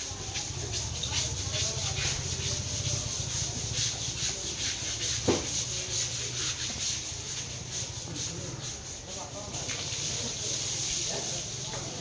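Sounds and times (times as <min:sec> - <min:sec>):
hand scrubbing strokes: 0:00.0 - 0:12.0
high hiss: 0:00.0 - 0:12.0
brief thump: 0:05.2 - 0:05.6.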